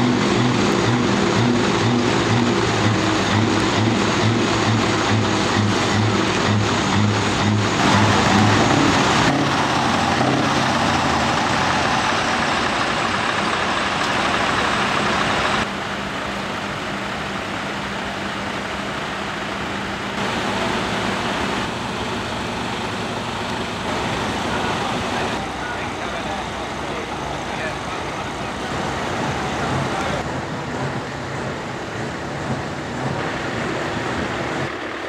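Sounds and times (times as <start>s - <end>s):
truck diesel engines idling: 0.0s - 35.0s.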